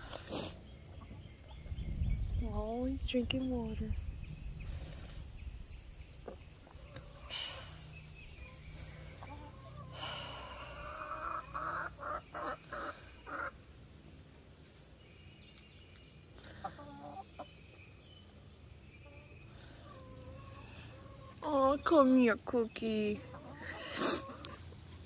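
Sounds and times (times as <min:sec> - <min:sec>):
hen clucking: 0:06.1 - 0:13.9, 0:16.4 - 0:25.0.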